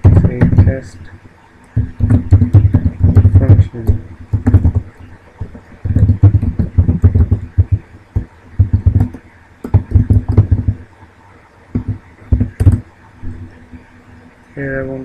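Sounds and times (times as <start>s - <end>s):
typing on computer keyboard: 1.8s - 10.8s, 11.8s - 12.9s.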